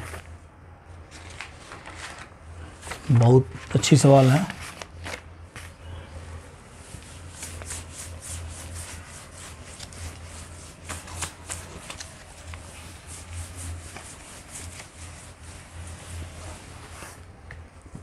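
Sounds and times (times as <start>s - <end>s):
low electrical hum: 0.0s - 18.0s
eraser rubbing on whiteboard: 6.8s - 17.2s.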